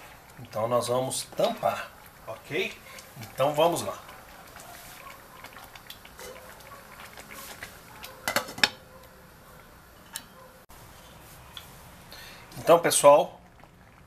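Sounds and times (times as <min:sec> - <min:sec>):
glass lid clinking on pot: 0:08.3 - 0:08.8.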